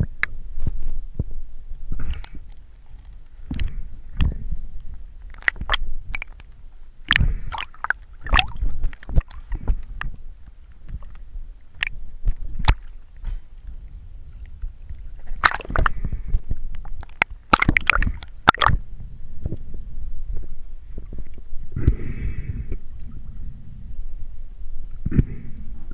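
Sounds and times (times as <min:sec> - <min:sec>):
water sloshing and gurgling: 0:00.0 - 0:23.9
water splashing: 0:05.2 - 0:10.2, 0:10.8 - 0:13.3, 0:14.9 - 0:16.1, 0:16.8 - 0:18.8.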